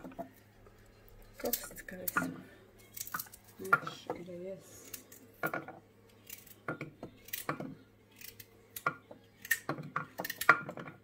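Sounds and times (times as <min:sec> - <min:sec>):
kitchen utensils clicking and knocking: 0:00.0 - 0:00.4, 0:01.3 - 0:11.0.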